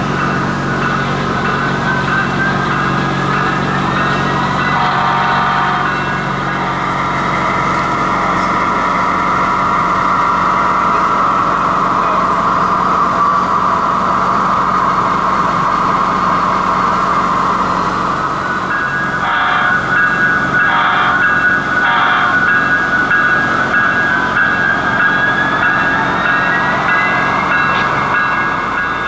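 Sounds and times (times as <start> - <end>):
model train diesel engine sound: 0.0 - 29.0
multi-tone horn blast: 4.7 - 6.0, 19.2 - 20.0, 21.9 - 22.5.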